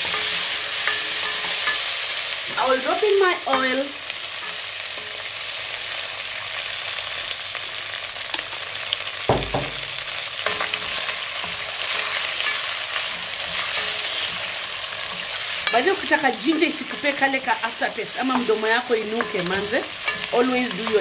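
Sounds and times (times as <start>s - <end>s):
food sizzling in hot oil: 0.0s - 21.0s
dull knock: 9.3s - 9.9s.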